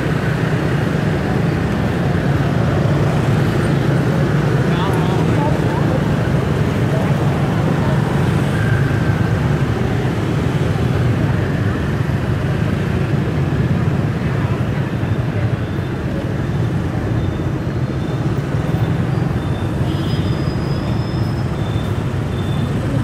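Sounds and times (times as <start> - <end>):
low rumble of traffic: 0.0 - 23.0
faint high beep: 15.1 - 23.0.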